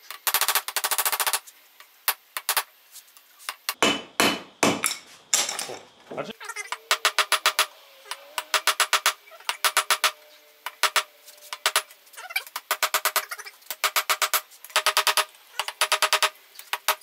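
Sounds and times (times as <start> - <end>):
hammer blows ringing on metal: 3.8 - 5.0.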